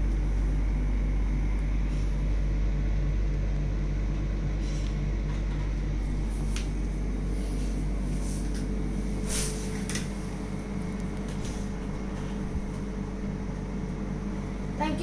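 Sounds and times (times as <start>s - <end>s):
low mechanical room hum: 0.0s - 15.0s.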